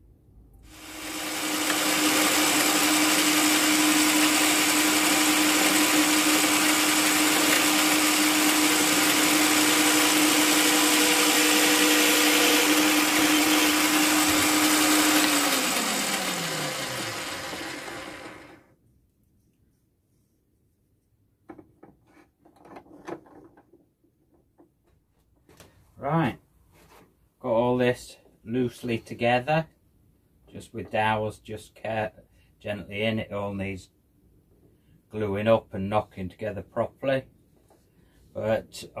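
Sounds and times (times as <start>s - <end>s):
drill press motor humming: 0.7s - 18.6s
motor winding down: 0.7s - 18.6s.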